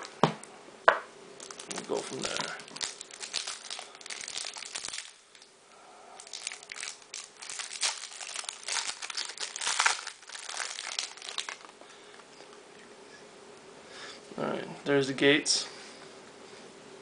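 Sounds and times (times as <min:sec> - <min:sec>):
plastic wrapping crinkling and tearing: 0:01.4 - 0:05.5, 0:06.2 - 0:11.8.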